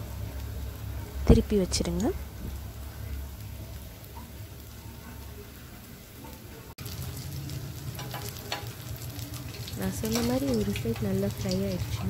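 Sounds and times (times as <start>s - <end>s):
frying oil sizzling: 0.0s - 12.0s.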